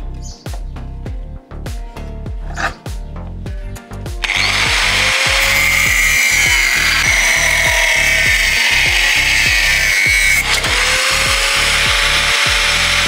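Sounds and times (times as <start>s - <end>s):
angle grinder cutting steel: 2.5s - 2.8s, 4.2s - 13.0s.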